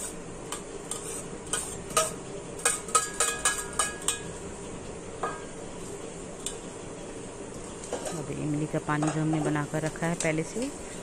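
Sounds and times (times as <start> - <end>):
metal spoon scraping steel plate: 0.8 - 4.2
steel dishes knocking: 1.5 - 4.3.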